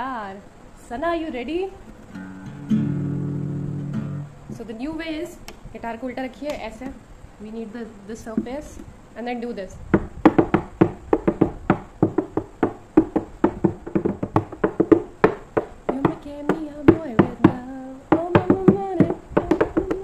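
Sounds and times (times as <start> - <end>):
hands drumming on guitar body: 9.9 - 20.0.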